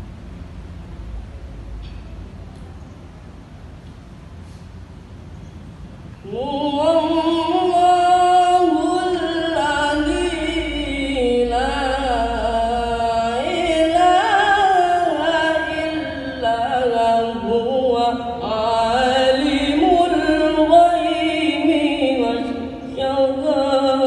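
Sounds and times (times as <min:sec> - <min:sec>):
person chanting melodically: 0:06.2 - 0:24.0.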